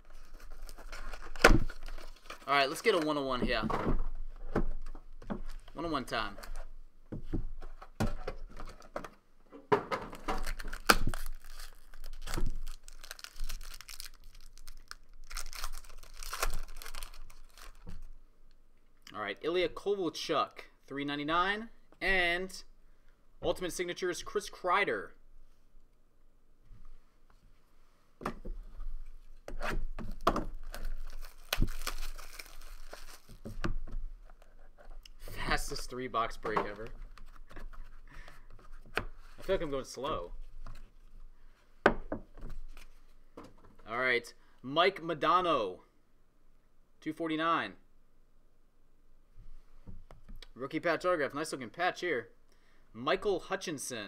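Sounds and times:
packaging rustling and crackling: 0.0s - 3.2s, 10.2s - 18.1s, 30.0s - 33.7s
packaging snapping: 10.2s - 17.9s, 30.1s - 33.4s
plastic wrapping tearing and crinkling: 10.2s - 18.1s, 30.0s - 33.6s.

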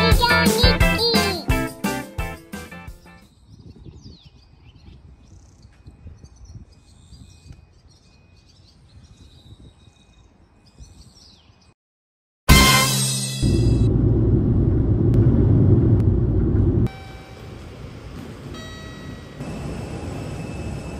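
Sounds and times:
bird chirps: 3.2s - 11.7s
gusting wind on microphone: 3.4s - 8.0s, 8.6s - 10.2s, 13.4s - 16.9s.

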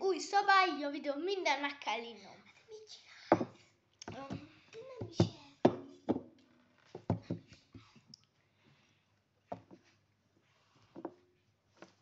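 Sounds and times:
glass mug knocking on wooden table: 5.2s - 6.3s.

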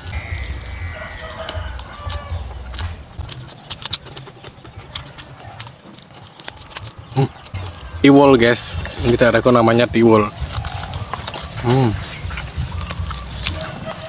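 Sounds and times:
chicken calling: 0.0s - 5.6s, 8.8s - 14.0s
crunching and chewing fried food: 0.0s - 14.0s.

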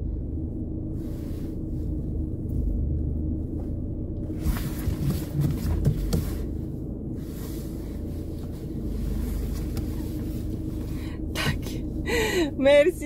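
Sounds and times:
car engine low hum: 0.0s - 13.0s.

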